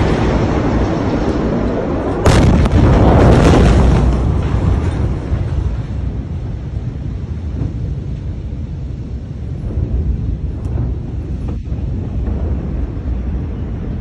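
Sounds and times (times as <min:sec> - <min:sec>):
explosion crack: 0:00.0 - 0:08.8, 0:09.4 - 0:14.0
heavy low rumble: 0:00.0 - 0:14.0.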